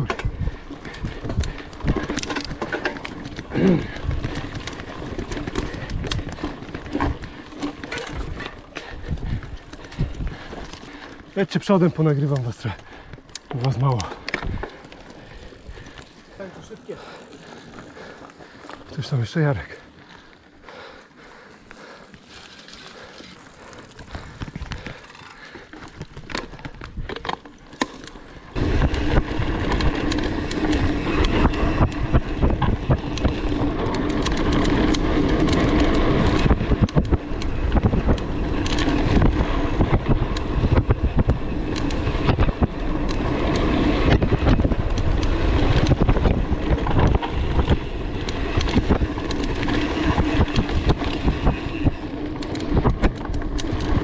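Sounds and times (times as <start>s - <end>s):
wind buffeting microphone: 0.0s - 11.0s, 28.5s - 54.0s
bike rumbling and rattling: 0.0s - 54.0s
light bike clicks: 0.0s - 54.0s.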